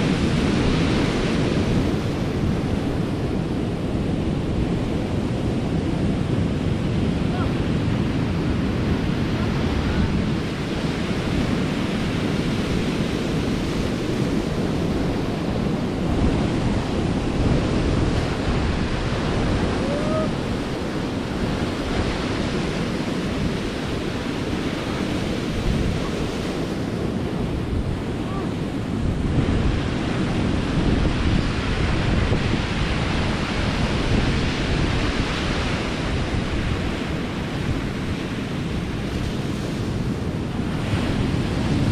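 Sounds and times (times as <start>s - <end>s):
wind buffeting microphone: 0.0s - 41.9s
surf breaking on rocks: 6.2s - 41.9s.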